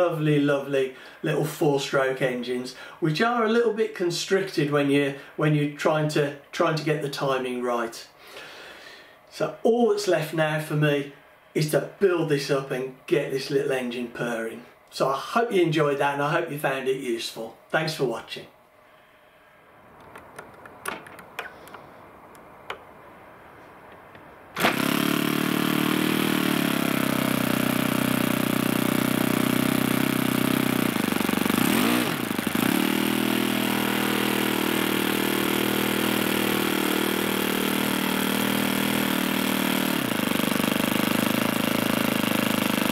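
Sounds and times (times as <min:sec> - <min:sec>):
small glow engine running: 0:24.6 - 0:42.9.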